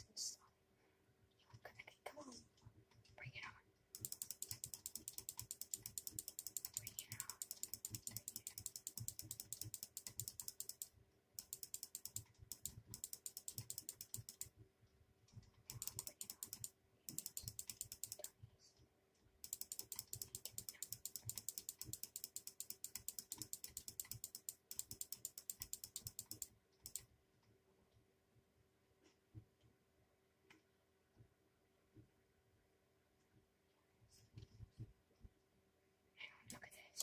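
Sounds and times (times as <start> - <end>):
rapid even clicking: 4.0 - 14.5, 15.7 - 18.3, 19.4 - 27.0.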